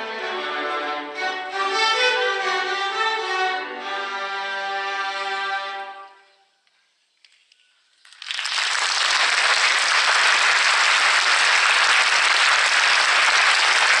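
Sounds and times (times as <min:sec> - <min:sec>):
audience clapping: 0:08.0 - 0:14.0.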